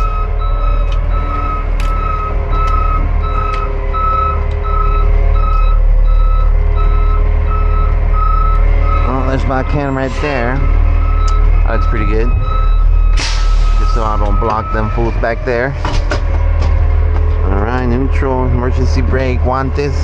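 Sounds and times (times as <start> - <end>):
truck backup alarm beeping: 0.0 - 20.0
truck engine running low: 0.0 - 20.0.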